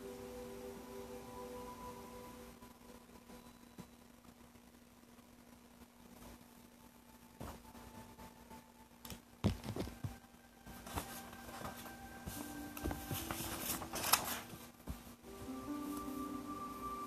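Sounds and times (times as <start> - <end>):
faint steady tones: 0.0 - 17.0
rustling: 9.5 - 16.4.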